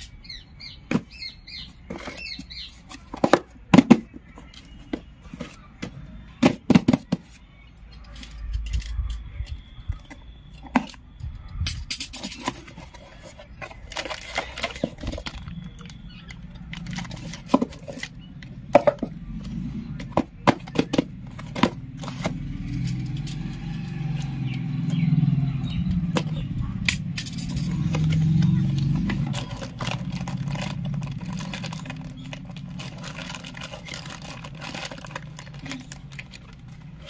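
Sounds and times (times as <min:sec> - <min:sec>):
plastic wrapping rustling: 0:12.4 - 0:18.2, 0:27.7 - 0:37.0
low engine hum: 0:18.1 - 0:37.0.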